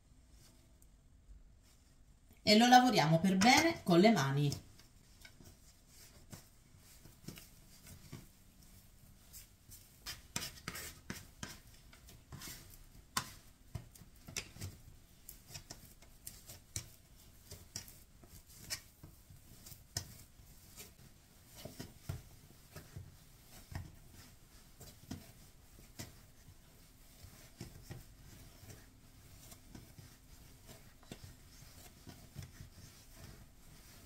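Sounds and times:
hands kneading dough: 0.0s - 34.0s
dough scraper scraping: 9.3s - 34.0s.

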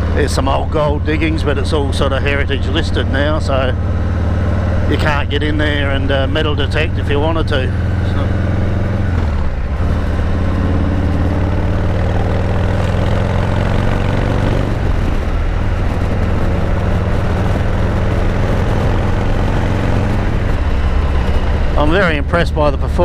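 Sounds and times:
motorcycle engine: 0.0s - 23.0s
wind rush: 7.7s - 23.0s.

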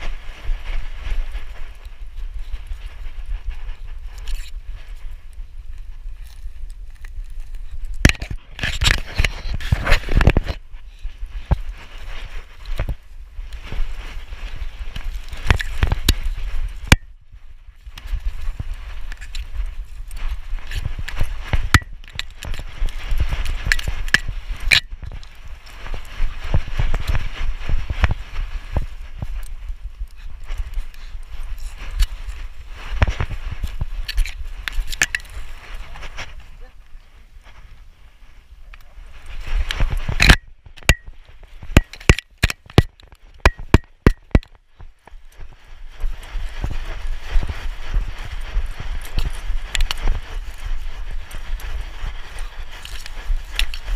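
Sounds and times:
fur rustling against camera: 0.0s - 40.2s, 43.1s - 53.9s
camera knocking and clicking: 41.7s - 44.6s.

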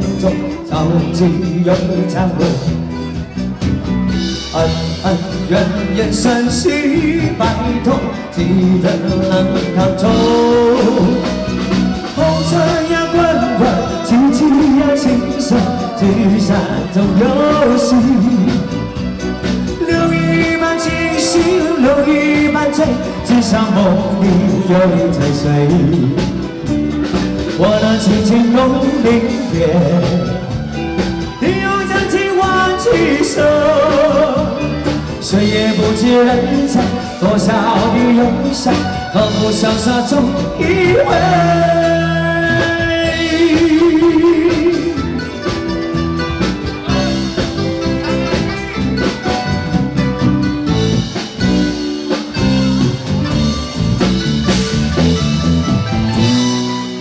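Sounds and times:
band with drums: 0.0s - 57.0s
person singing live: 0.0s - 57.0s.

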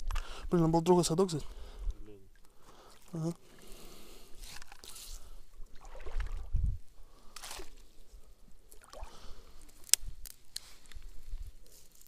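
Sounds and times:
fishing gear rustling and scraping: 2.9s - 5.5s, 9.4s - 12.0s.

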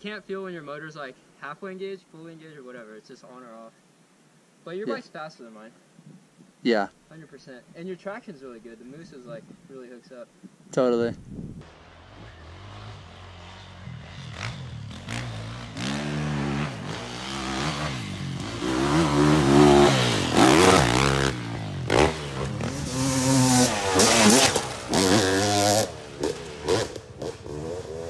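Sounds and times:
dirt bike engine revving: 11.6s - 28.0s.

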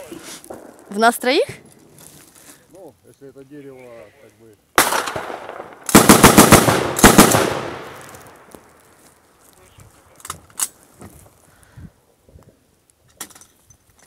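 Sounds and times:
automatic gunfire bursts: 4.8s - 8.0s
faint sharp cracks: 6.7s - 11.5s.

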